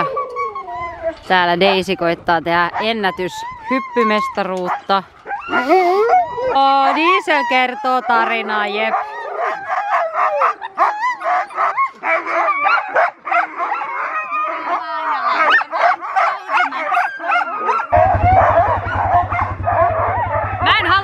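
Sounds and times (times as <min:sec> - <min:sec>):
sled dogs barking and howling: 0:00.0 - 0:21.0
quad bike engine rumble: 0:17.9 - 0:21.0.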